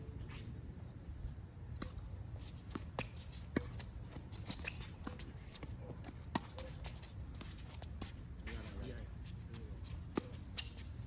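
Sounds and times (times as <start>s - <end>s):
tennis ball bouncing: 1.7s - 8.3s, 9.9s - 11.0s
racket hitting tennis ball: 1.8s - 8.2s.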